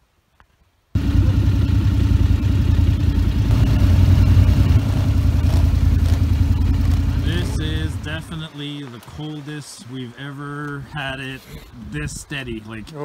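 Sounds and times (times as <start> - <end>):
quad engine running: 1.0 - 8.5.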